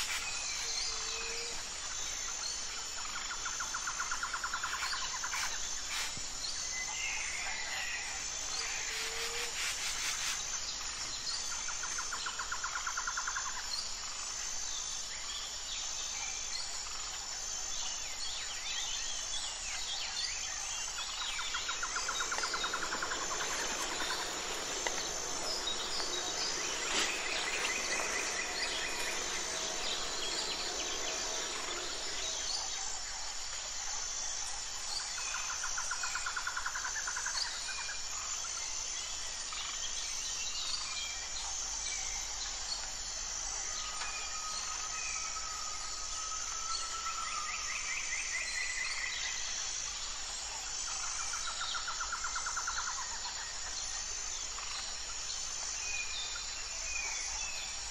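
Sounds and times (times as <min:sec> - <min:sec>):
insect chirping steadily: 0:00.0 - 0:47.7
birds chirping: 0:21.4 - 0:32.7.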